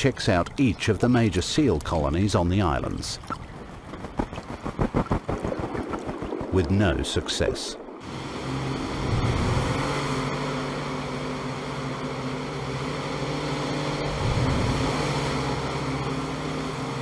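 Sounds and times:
motorboat engine running: 0.0 - 6.8, 8.0 - 17.0
breaking surf: 4.3 - 11.0, 14.0 - 16.4.

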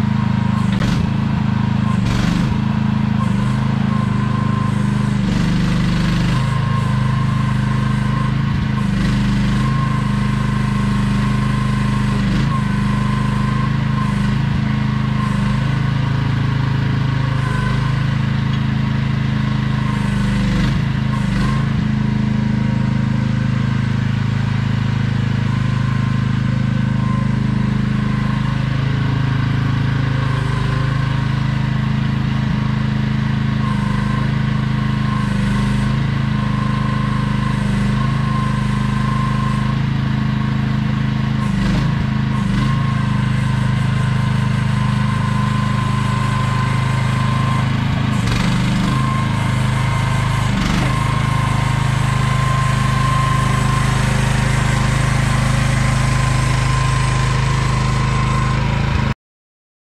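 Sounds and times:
excavator engine running: 0.0 - 59.2.

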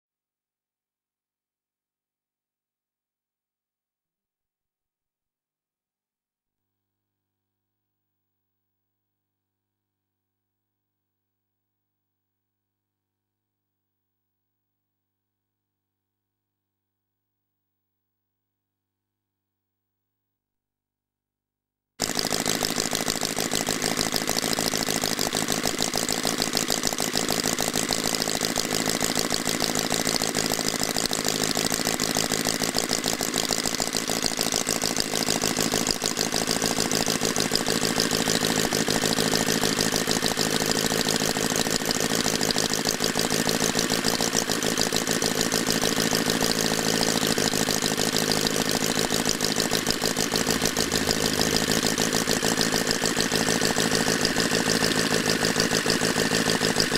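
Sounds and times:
model engine running: 22.0 - 56.9.

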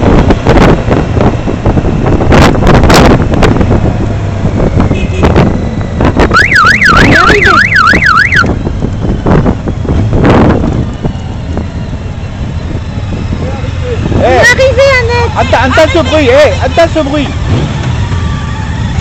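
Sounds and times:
wind buffeting microphone: 0.0 - 15.4
motorcycle engine: 0.0 - 19.0
road noise: 0.0 - 19.0
warbling siren-like tone: 6.2 - 8.6.

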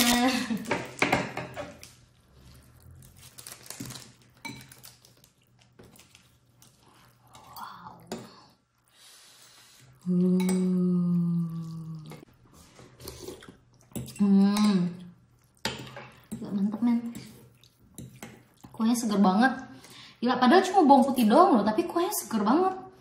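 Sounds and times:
person humming: 10.0 - 12.2.

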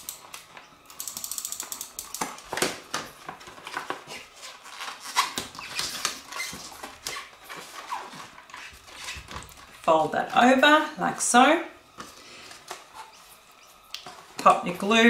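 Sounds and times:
glossy paper crinkling: 3.2 - 10.6.

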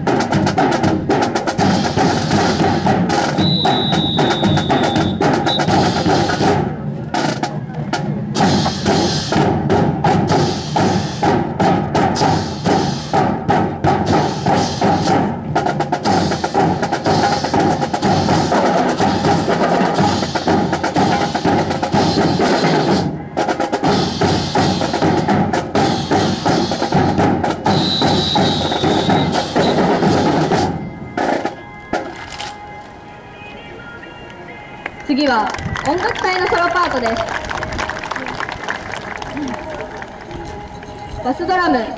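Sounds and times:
band music with drums: 0.0 - 32.7.

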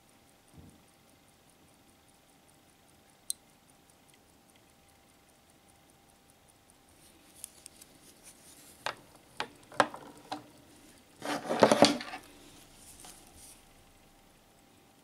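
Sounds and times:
fast watch ticking: 0.2 - 11.3
rubbing and clatter: 11.2 - 12.2.

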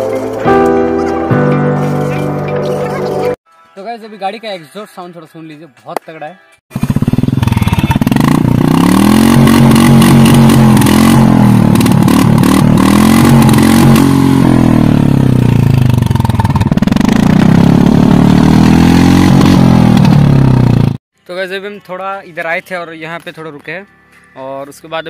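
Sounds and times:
motorcycle idling and revving: 6.7 - 21.0.

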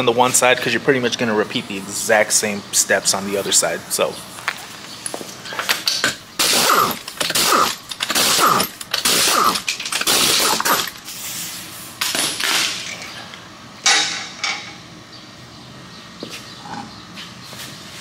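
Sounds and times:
pneumatic impact gun bursts: 6.0 - 12.8.

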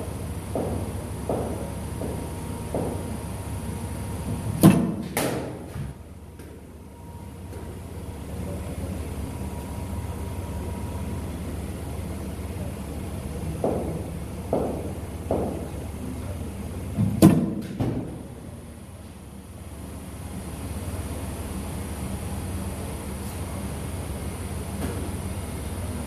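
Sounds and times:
low background hum: 0.0 - 26.0
cricket bat striking ball: 0.5 - 3.0, 4.6 - 5.8.

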